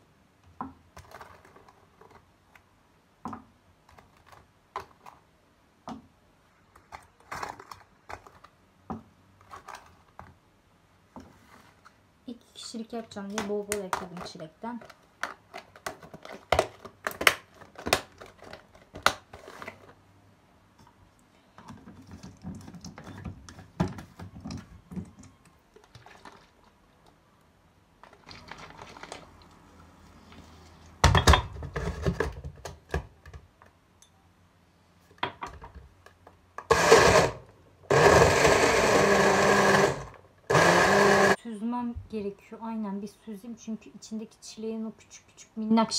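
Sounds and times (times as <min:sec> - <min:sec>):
bottle blender running: 0:36.6 - 0:41.4.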